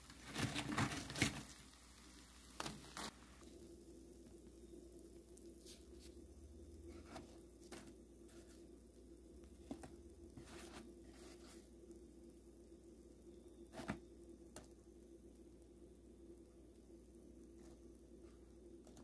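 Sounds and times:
crispy chicken skin crackling: 0.0 - 6.2.

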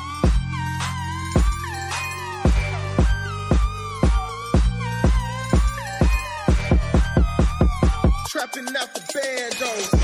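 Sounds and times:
synth melody: 0.0 - 8.3
heavy kick drum beat: 2.5 - 8.3.

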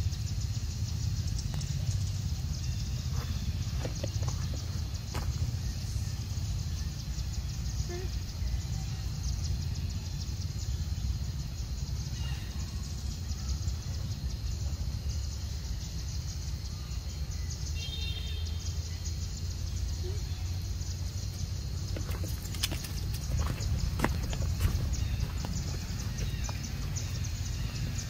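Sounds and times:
high chirping call: 17.5 - 28.0.

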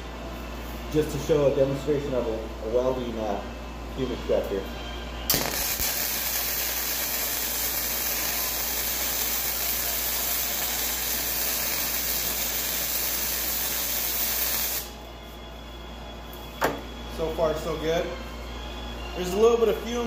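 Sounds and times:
welding arc sizzling: 5.3 - 15.0.

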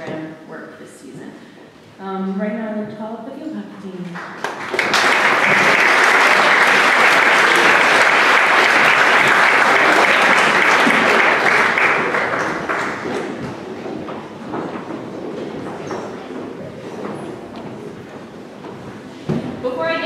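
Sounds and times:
audience applauding: 4.1 - 14.4.

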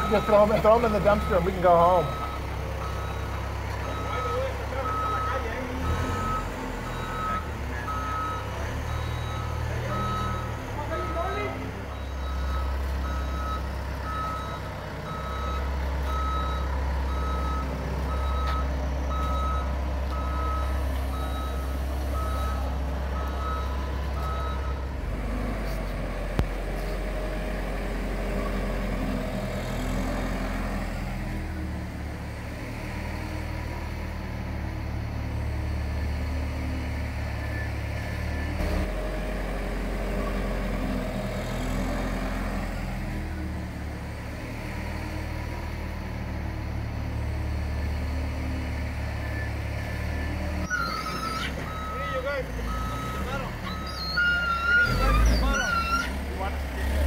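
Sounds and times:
reversing alarm beeping: 0.0 - 24.8, 49.3 - 56.1
diesel engine running under load: 0.0 - 57.0.

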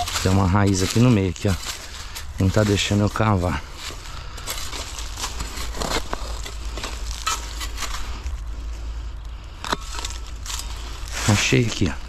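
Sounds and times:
shovel scraping into soil: 4.5 - 8.3.

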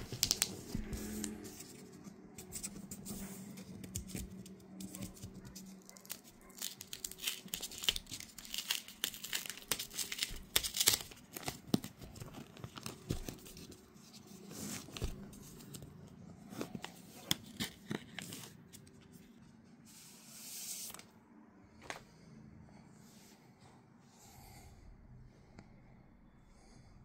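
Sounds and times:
protective wrap crinkling: 0.0 - 0.9, 4.8 - 13.8.

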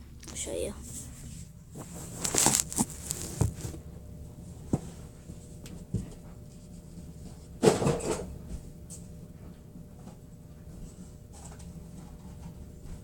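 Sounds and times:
noisy rustle: 0.4 - 3.8.

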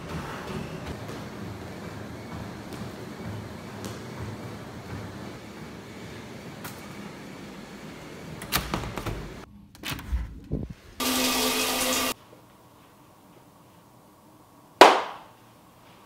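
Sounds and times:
shower spraying water: 11.0 - 12.2.

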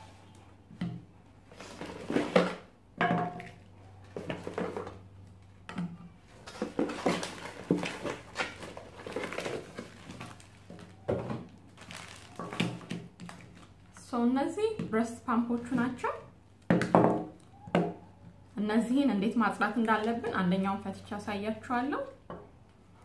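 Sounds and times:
plastic bottles knocking and rattling: 0.8 - 5.0, 5.6 - 13.7, 16.7 - 18.0.

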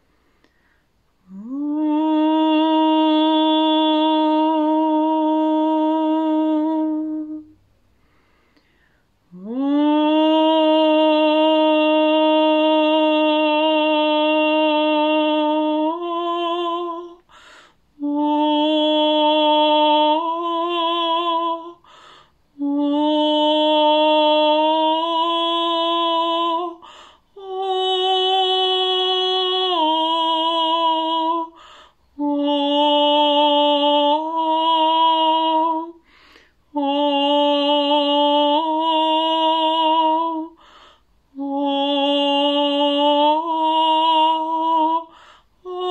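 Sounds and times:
woman breathing: 0.0 - 1.3, 7.8 - 9.4, 17.2 - 18.0, 21.8 - 22.6, 26.8 - 27.4, 31.5 - 32.2, 36.0 - 36.8, 40.5 - 41.4, 45.1 - 45.7
woman singing sustained tones: 1.2 - 7.6, 9.3 - 45.9.

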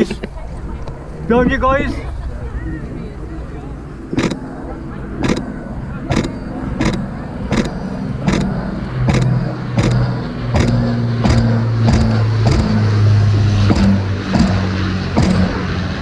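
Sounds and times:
propeller plane engines droning: 0.0 - 16.0
sharp clicks: 4.1 - 4.4, 5.2 - 5.5, 6.1 - 12.9, 13.7 - 15.6.

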